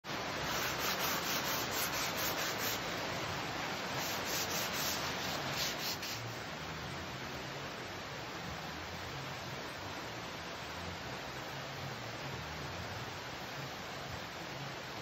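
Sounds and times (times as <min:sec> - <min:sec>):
sandpaper rubbing on wood: 0:00.4 - 0:02.9, 0:03.9 - 0:06.4.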